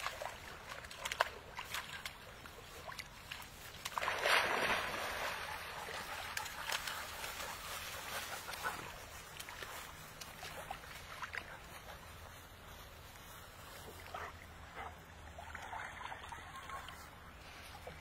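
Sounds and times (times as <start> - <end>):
dog paddling with small splashes: 0.0 - 18.0
puppies rustling through grass: 4.8 - 14.4.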